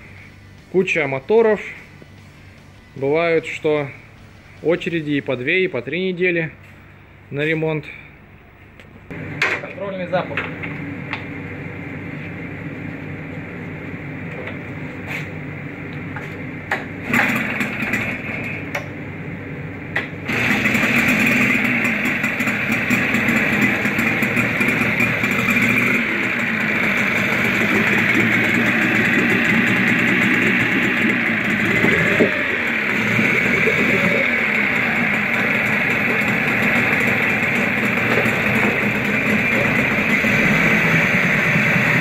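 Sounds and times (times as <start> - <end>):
outboard motor starting and running: 16.1 - 42.0.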